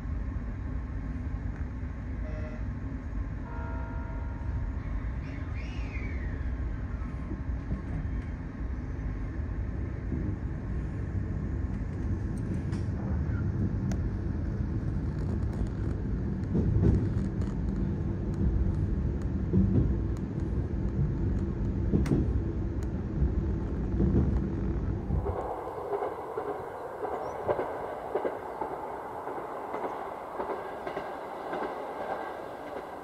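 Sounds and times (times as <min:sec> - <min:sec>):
railcar engine drone: 0:00.0 - 0:33.0
wheels clacking over rail joints: 0:25.2 - 0:33.0.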